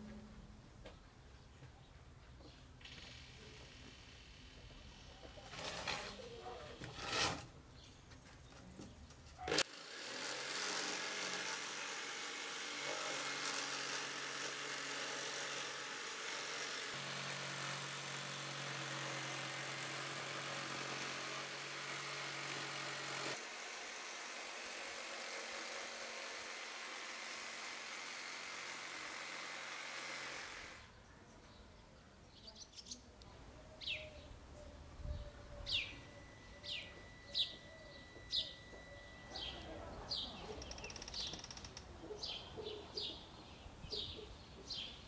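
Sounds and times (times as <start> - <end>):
electric saw cutting plywood: 9.5 - 30.9, 35.7 - 39.6.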